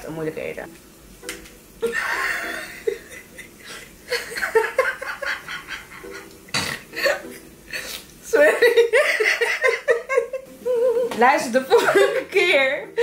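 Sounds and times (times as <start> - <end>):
women laughing: 1.8 - 6.3, 8.4 - 11.1, 11.7 - 13.0.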